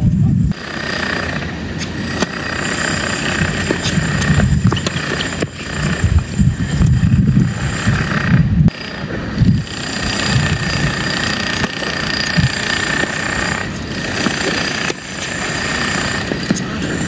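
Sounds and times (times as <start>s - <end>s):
wind buffeting microphone: 0.0s - 0.7s, 1.3s - 17.0s
machine noise with high whine: 0.0s - 17.0s
tennis racket hitting ball: 4.6s - 5.7s.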